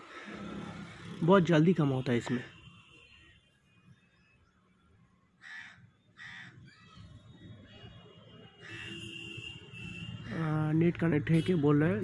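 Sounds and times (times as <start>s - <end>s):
crow cawing: 5.4s - 6.9s, 8.6s - 9.1s.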